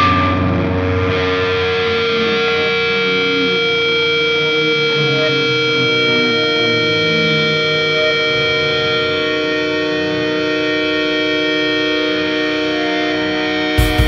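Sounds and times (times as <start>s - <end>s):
low notes: 0.0s - 14.0s
ringing guitar chord: 0.0s - 14.0s.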